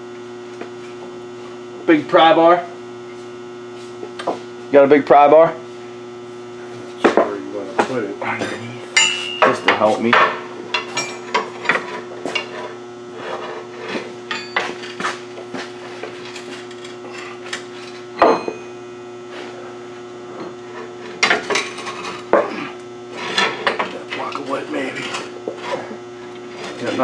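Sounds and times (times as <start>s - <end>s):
hum of shop lights: 0.0s - 27.0s
metal clinks and knocks of tools: 10.7s - 11.4s.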